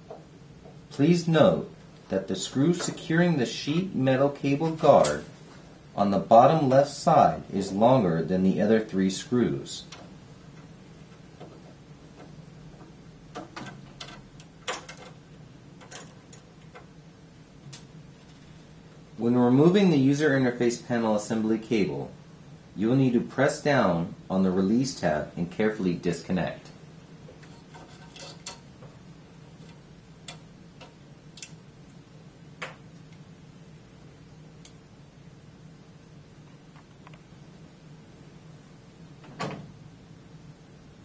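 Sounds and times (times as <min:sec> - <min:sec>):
low steady hum: 0:00.0 - 0:41.0
screwdriver clicking on sheet metal: 0:27.4 - 0:28.7.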